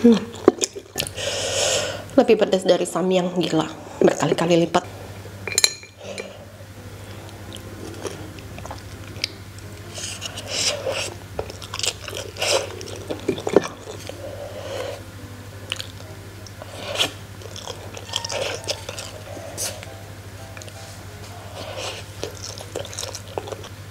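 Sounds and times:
person slurping and chewing noodles: 0:07.5 - 0:15.1, 0:15.7 - 0:20.0, 0:20.6 - 0:23.7.

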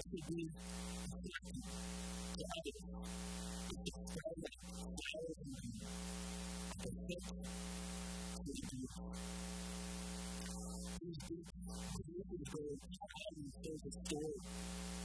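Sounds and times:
man speaking softly: 0:00.0 - 0:06.0, 0:06.6 - 0:07.4, 0:08.2 - 0:09.3, 0:10.4 - 0:14.6
electrical mains hum with hiss: 0:00.1 - 0:12.1, 0:13.6 - 0:15.0.

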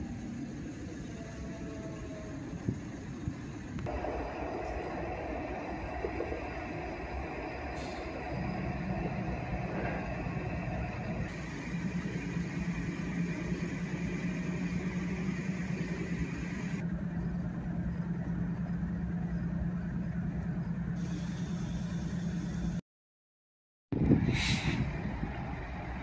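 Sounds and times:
freight train cars rolling: 0:00.0 - 0:22.8.

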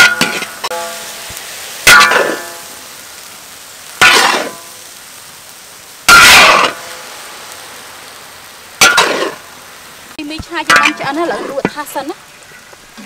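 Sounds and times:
metal spatula scraping in a wok: 0:00.0 - 0:02.8
faint sizzle: 0:00.0 - 0:13.0.

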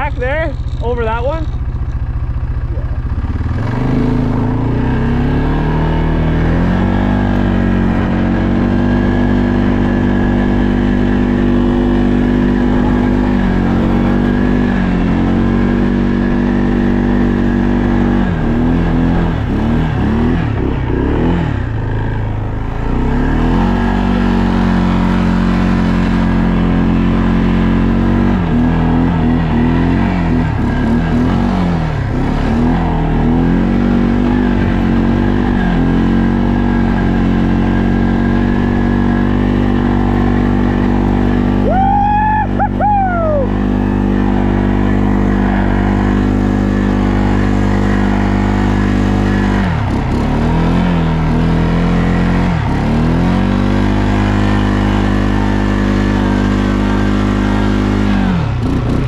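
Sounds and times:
atv engine revving: 0:00.0 - 0:59.0.

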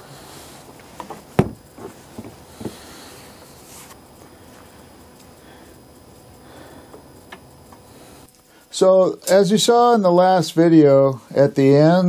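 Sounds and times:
knocks: 0:01.4 - 0:02.7.

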